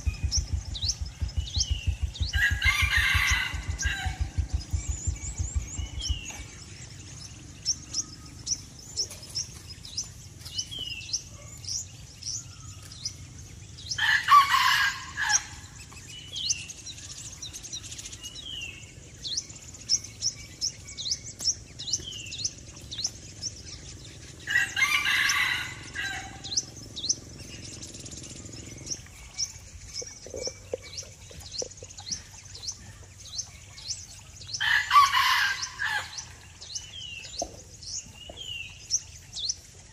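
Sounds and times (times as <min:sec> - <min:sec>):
high bird chirps: 0:00.0 - 0:39.9
rooster crowing: 0:02.3 - 0:04.4, 0:14.0 - 0:15.6, 0:24.5 - 0:26.5, 0:34.6 - 0:36.3.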